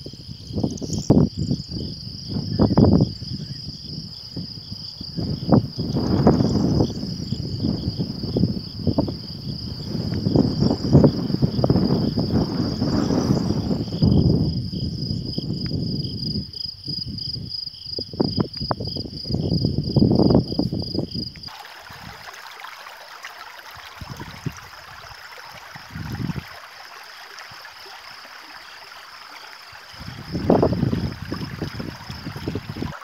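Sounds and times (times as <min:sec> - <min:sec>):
high pulsing insect trill: 0:00.0 - 0:33.0
wind rumbling on microphone: 0:00.0 - 0:33.0
stream trickling over stones: 0:21.5 - 0:33.0.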